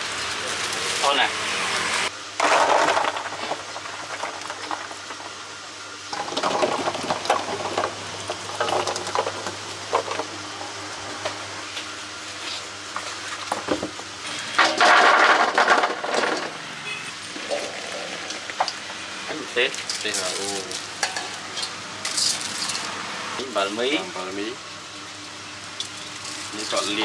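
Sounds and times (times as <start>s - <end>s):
fruits clattering into steel bowl: 2.4s - 5.4s, 6.1s - 10.3s, 14.6s - 16.6s.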